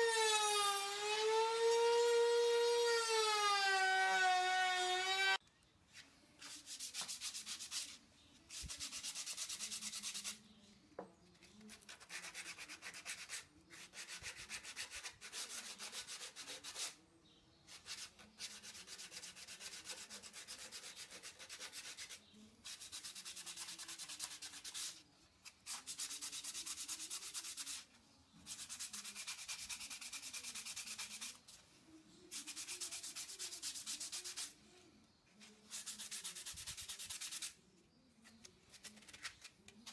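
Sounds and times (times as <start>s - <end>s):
sandpaper scratching on wood: 6.4s - 10.4s, 11.7s - 17.0s, 17.7s - 27.9s, 28.5s - 31.5s, 32.3s - 34.6s, 35.7s - 37.6s.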